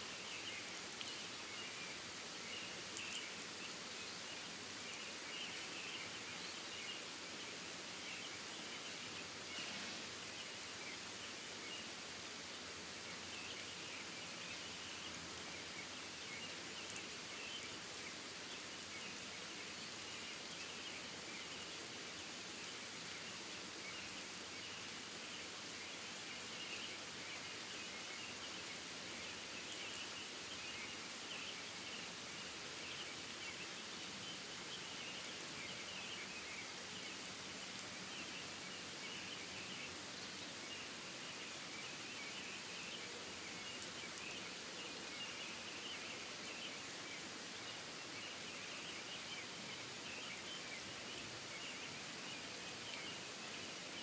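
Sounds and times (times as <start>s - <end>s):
steady rain hiss: 0.0s - 54.0s
soft ticks: 0.9s - 1.2s.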